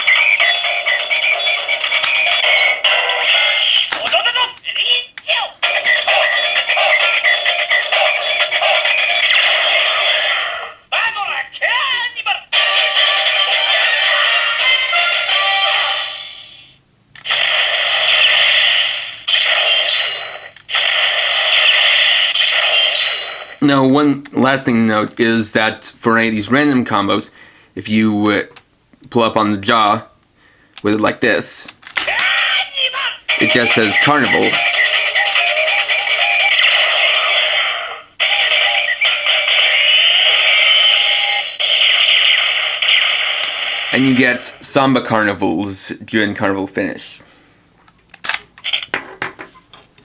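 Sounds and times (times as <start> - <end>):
toy speaker singing tune: 0.0 - 10.5, 12.6 - 16.6, 33.3 - 41.6
synthesized voice: 0.0 - 16.7, 32.1 - 42.4, 43.9 - 45.0
hissing static sound effect: 12.8 - 23.6, 33.2 - 44.9.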